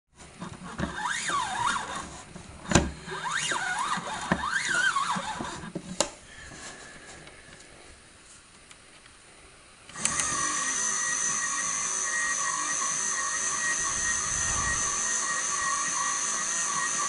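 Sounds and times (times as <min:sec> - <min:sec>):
faint steady whine: 0:00.2 - 0:17.0
toy washing machine squealing: 0:00.8 - 0:02.0, 0:03.2 - 0:05.6, 0:10.2 - 0:17.0.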